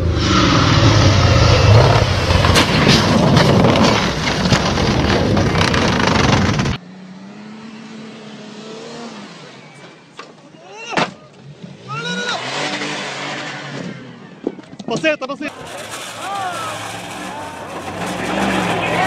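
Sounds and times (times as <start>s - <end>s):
off-road vehicle engine revving loud: 0.0s - 9.7s, 11.5s - 14.2s, 15.5s - 19.0s.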